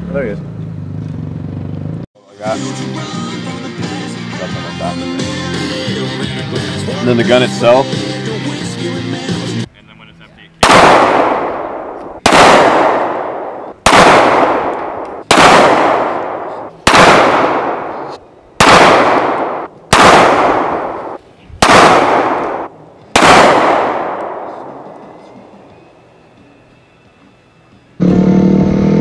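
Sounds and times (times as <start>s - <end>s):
handgun shots with echo: 10.6s - 24.9s.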